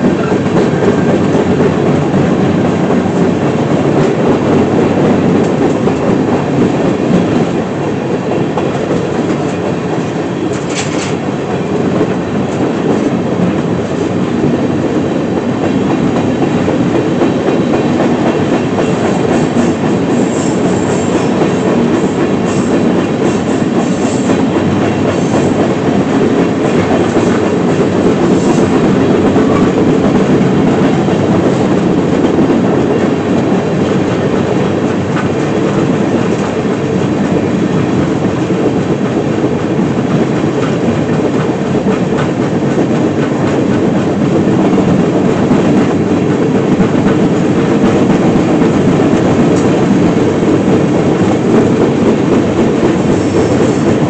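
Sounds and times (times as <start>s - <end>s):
freight train wheels on rails: 0.0s - 54.0s.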